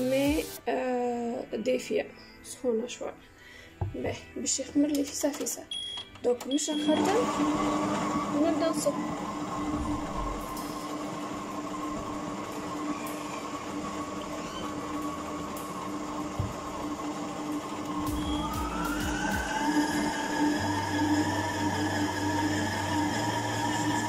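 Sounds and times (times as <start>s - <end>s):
stand mixer motor hum and whine: 7.0s - 24.0s.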